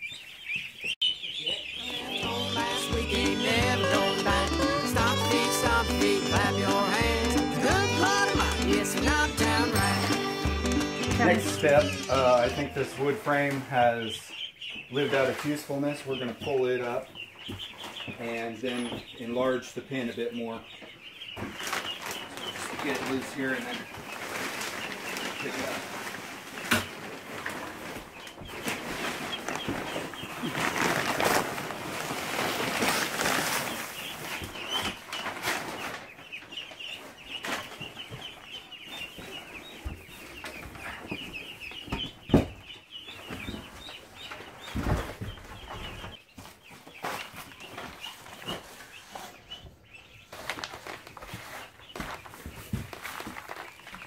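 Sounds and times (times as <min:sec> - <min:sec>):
ducklings peeping: 0:00.0 - 0:54.0
plastic being handled: 0:21.4 - 0:41.2, 0:50.3 - 0:54.0
rustling of bedding: 0:21.4 - 0:49.4, 0:50.2 - 0:54.0.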